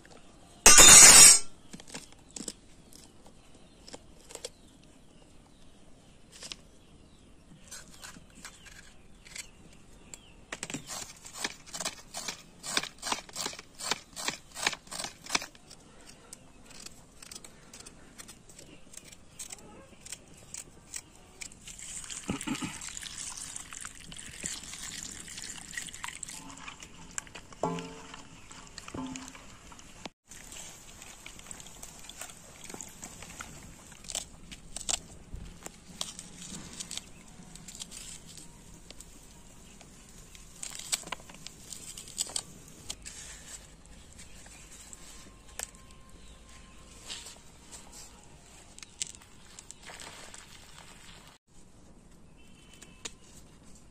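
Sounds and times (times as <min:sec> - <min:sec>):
water pouring over vegetables: 0:21.7 - 0:26.8.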